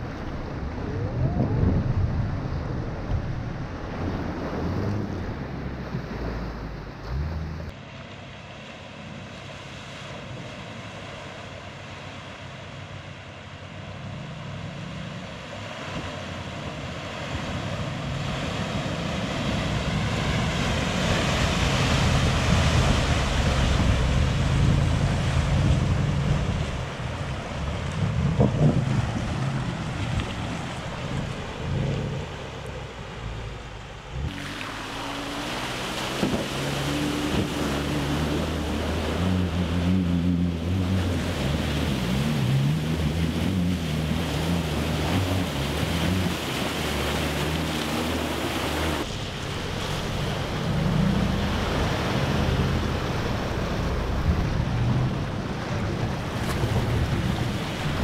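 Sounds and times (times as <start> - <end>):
water rushing and splashing: 0.0 - 58.0
engines working under load: 19.4 - 58.0.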